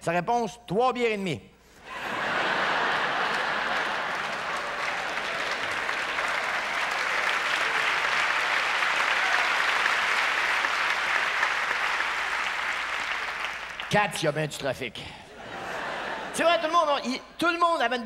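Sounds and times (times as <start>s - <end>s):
audience applauding: 2.0s - 14.2s.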